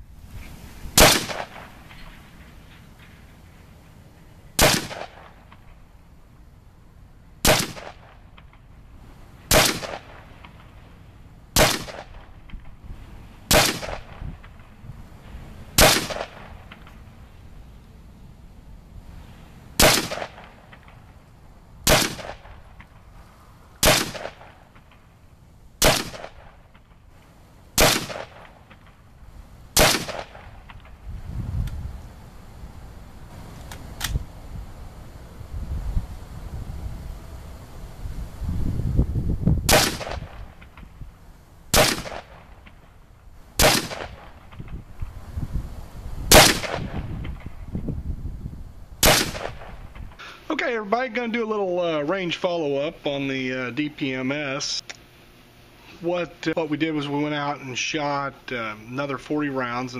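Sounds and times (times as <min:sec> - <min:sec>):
rifle shots: 0:01.0 - 0:03.1, 0:04.6 - 0:05.8, 0:07.4 - 0:08.6, 0:09.5 - 0:10.9, 0:11.5 - 0:12.8, 0:13.5 - 0:14.8, 0:15.8 - 0:17.0, 0:19.8 - 0:21.2, 0:21.8 - 0:23.0, 0:23.8 - 0:25.1, 0:25.8 - 0:27.0, 0:27.8 - 0:29.0, 0:29.8 - 0:31.0, 0:39.7 - 0:40.9, 0:41.7 - 0:42.9, 0:43.6 - 0:44.7, 0:46.3 - 0:47.5, 0:49.0 - 0:50.0.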